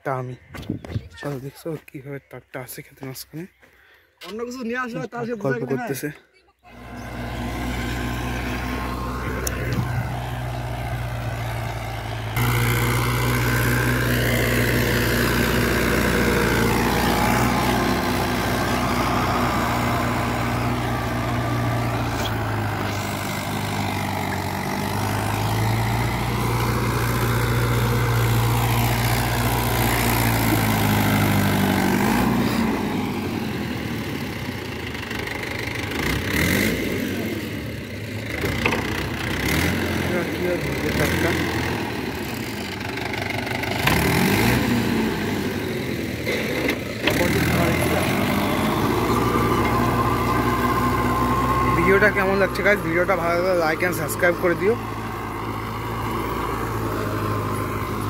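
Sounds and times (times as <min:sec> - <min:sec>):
tractor diesel engine running: 0:02.7 - 0:58.0
rotavator churning dry soil: 0:06.8 - 0:33.6, 0:46.3 - 0:58.0.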